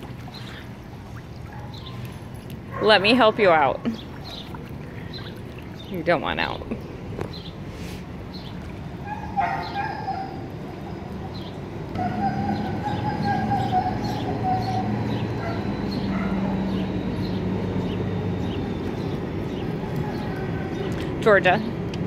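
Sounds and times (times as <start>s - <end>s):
dog whining: 9.0s - 10.5s, 12.0s - 16.8s, 19.7s - 20.9s.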